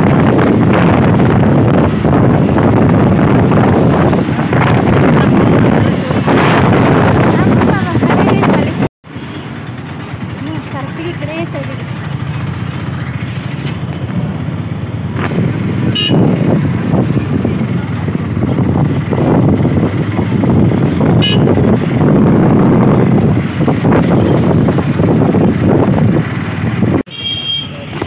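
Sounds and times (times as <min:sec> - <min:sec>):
wind rushing past: 0:00.0 - 0:08.9, 0:15.2 - 0:27.0
traffic noise: 0:00.0 - 0:28.0
car horn toots: 0:15.9 - 0:16.4, 0:21.1 - 0:21.7, 0:27.1 - 0:27.8.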